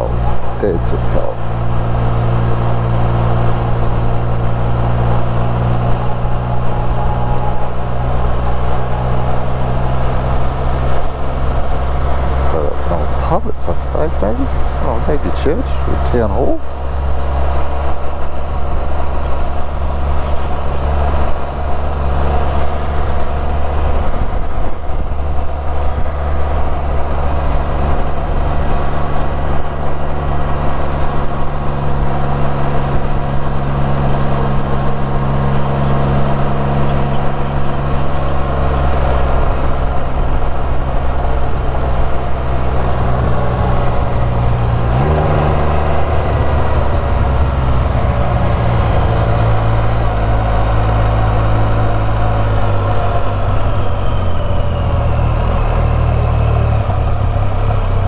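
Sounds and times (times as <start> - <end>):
three-wheeler engine running: 0.0 - 58.0.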